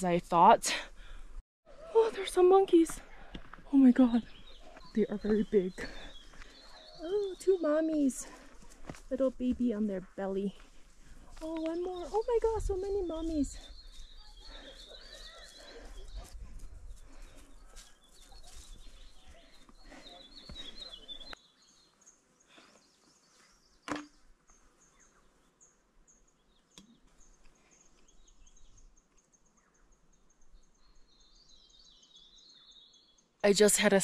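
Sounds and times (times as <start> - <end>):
small birds chirping: 0.0 - 34.0
footsteps: 2.7 - 21.4.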